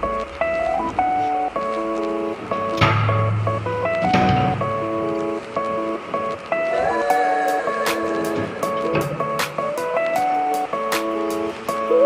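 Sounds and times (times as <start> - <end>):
instrumental music with held notes: 0.0 - 12.0
sharp hit: 2.6 - 5.5.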